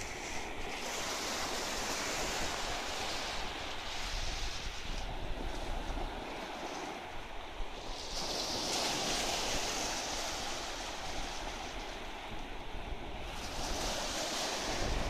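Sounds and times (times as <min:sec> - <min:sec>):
small waves breaking on sand: 0:00.0 - 0:15.0.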